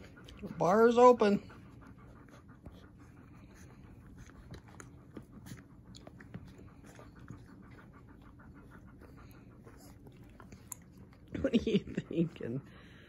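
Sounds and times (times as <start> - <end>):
puppies suckling wet smacking: 0.0 - 12.5
dog panting: 0.0 - 13.0.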